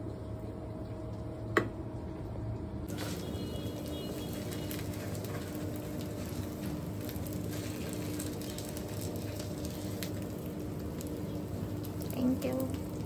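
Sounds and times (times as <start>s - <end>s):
eggs sizzling in pan: 2.7s - 13.0s.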